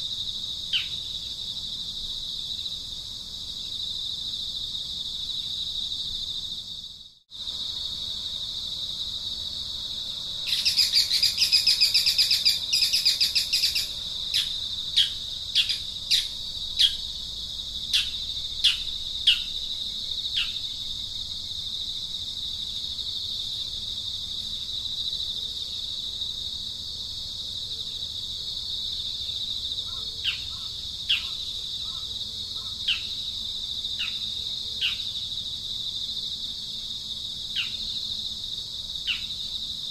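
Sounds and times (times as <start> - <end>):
insects droning: 0.0 - 39.9
rapid pulsing bird call: 10.4 - 17.1, 17.9 - 19.7, 29.8 - 33.3, 34.0 - 35.2.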